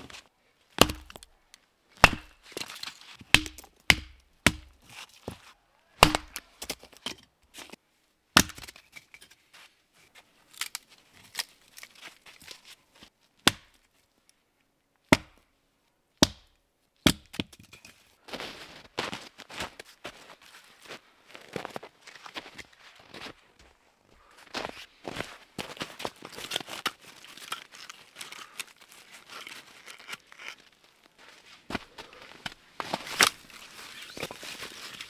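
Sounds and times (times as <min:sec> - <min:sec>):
hatchet chopping wood: 0:00.8 - 0:01.3, 0:02.0 - 0:02.4, 0:03.3 - 0:04.8, 0:06.0 - 0:06.8, 0:08.4 - 0:08.8, 0:13.5 - 0:13.8, 0:15.1 - 0:15.4, 0:16.2 - 0:17.6
wood cracking: 0:00.8 - 0:01.3, 0:02.0 - 0:04.8, 0:06.0 - 0:07.0.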